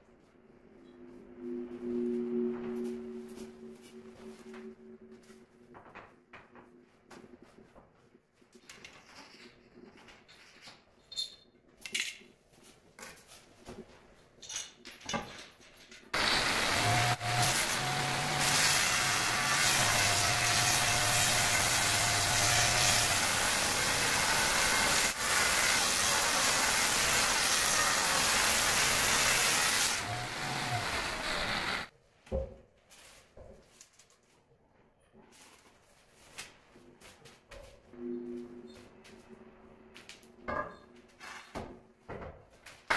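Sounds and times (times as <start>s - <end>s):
angle grinder cutting stone: 16.2s - 31.9s.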